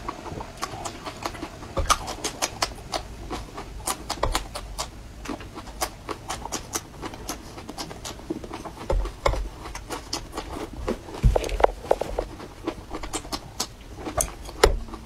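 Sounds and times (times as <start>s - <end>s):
crunching and chewing peppers: 0.0s - 15.0s
dull low thumps: 10.7s - 12.4s.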